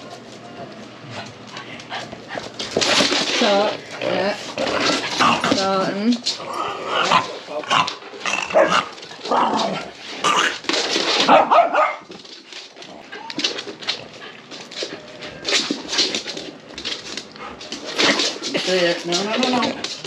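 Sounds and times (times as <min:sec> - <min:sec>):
dogs barking: 0:08.5 - 0:08.9, 0:11.3 - 0:12.1.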